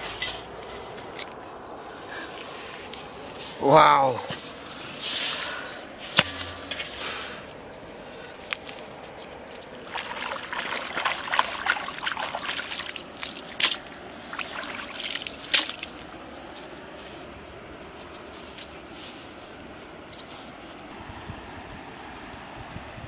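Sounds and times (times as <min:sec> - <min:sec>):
water trickling and splashing: 0:08.5 - 0:18.8.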